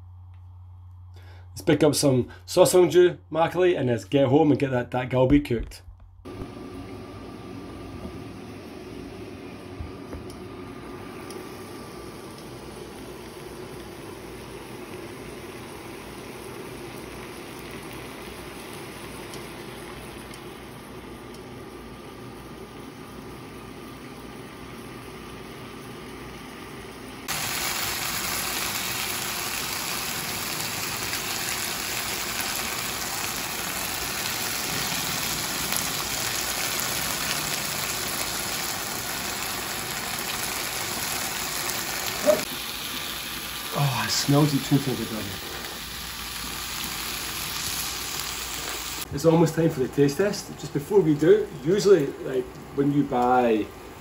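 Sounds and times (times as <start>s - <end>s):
chicken sizzling in frying pan: 10.7s - 49.1s.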